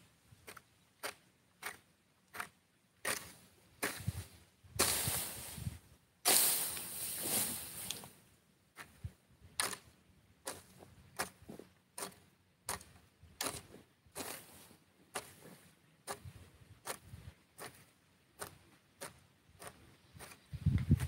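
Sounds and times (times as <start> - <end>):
hoe striking dry soil: 0.4 - 21.0
hoe scraping through dry grass: 0.5 - 8.2, 13.4 - 21.0.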